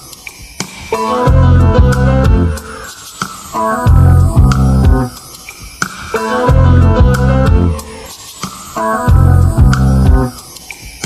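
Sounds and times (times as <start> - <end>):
deep bass notes: 1.3 - 2.6, 3.9 - 5.1, 6.5 - 8.0, 9.1 - 10.3
plucked melody: 6.2 - 8.1.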